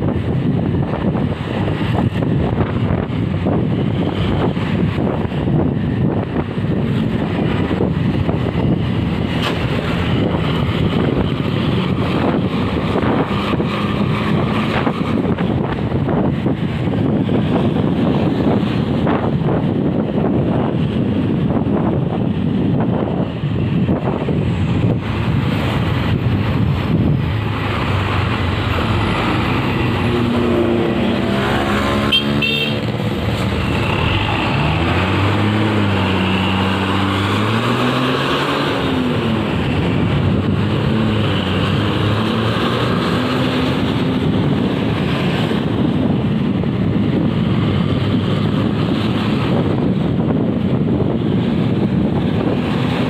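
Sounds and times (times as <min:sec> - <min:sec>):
wind and road noise: 0:00.0 - 0:53.0
pitched vehicle tone: 0:26.9 - 0:38.1.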